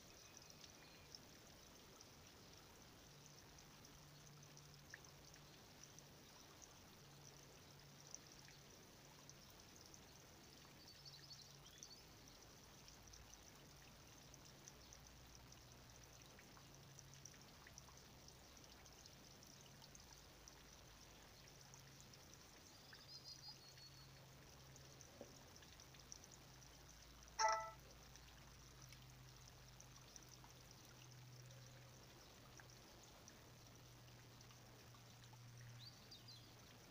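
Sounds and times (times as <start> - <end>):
faint outdoor hiss: 0.0 - 36.9
faint high chirps: 27.4 - 27.8
short pitched blip: 27.4 - 27.8.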